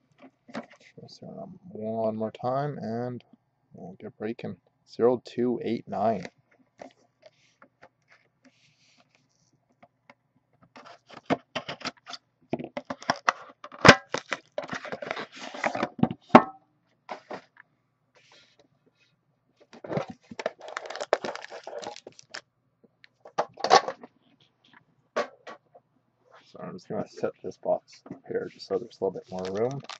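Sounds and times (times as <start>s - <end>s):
cardboard packaging handled: 14.0s - 15.9s, 19.7s - 22.4s, 28.8s - 29.9s
plastic wrap crinkling: 20.0s - 22.4s, 29.2s - 29.9s.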